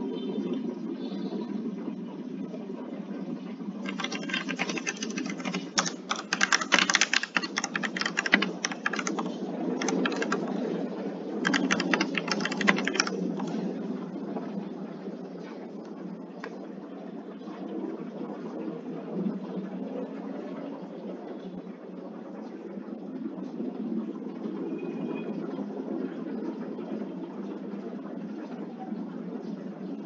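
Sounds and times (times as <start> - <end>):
keyboard typing clicks: 3.8 - 10.6, 11.4 - 13.6.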